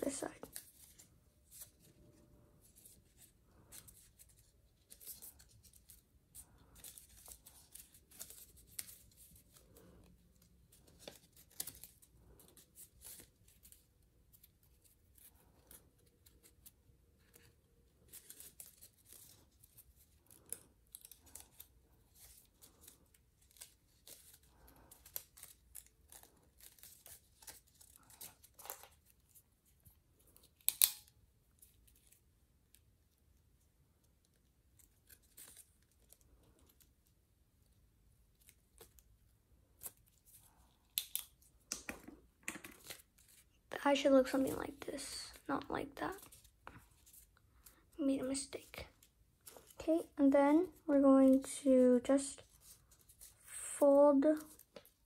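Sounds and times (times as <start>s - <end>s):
paper crackle: 0.0s - 32.2s, 34.3s - 37.0s
paper crinkling and rustling: 0.0s - 32.2s, 34.3s - 37.1s, 37.7s - 51.6s, 52.3s - 55.0s.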